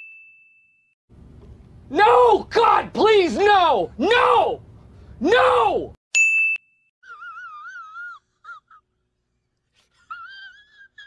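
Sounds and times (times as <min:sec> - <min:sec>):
catches of breath: 0:04.7 - 0:05.2
man crying with whimpers: 0:07.0 - 0:09.0, 0:09.8 - 0:11.0.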